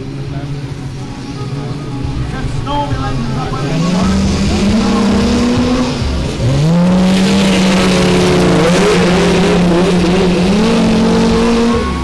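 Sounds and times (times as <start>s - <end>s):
small engine revving: 3.6s - 12.0s.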